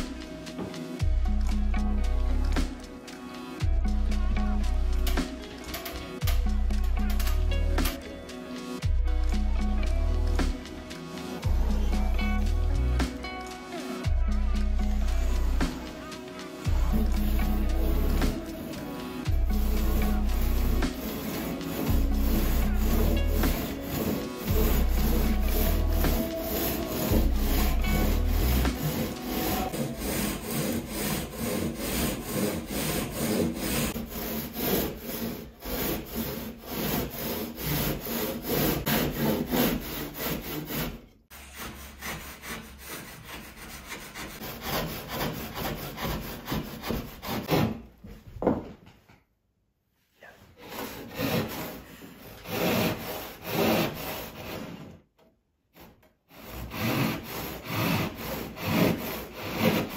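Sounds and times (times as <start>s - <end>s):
hand saw cutting drywall: 16.7s - 47.9s, 50.6s - 55.0s, 55.7s - 59.9s.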